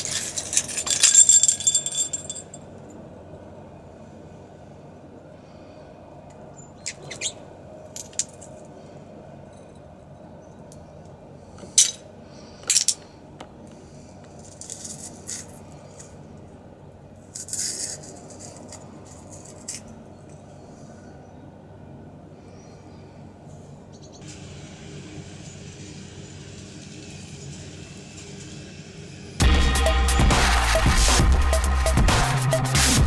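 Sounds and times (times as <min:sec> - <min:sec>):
glass shards clinking on concrete: 0:00.0 - 0:02.7.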